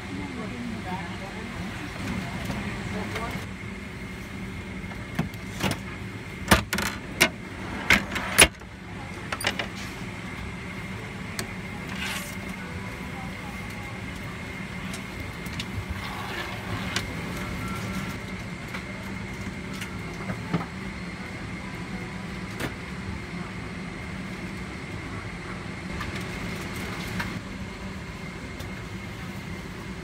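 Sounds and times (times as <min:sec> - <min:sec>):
airliner cabin hum: 0:00.0 - 0:30.0.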